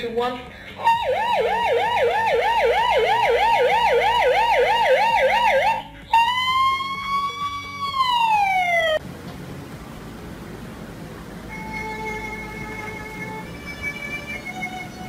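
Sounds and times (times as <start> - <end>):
siren long wail: 0.8 - 9.0
siren yelp: 0.8 - 9.0.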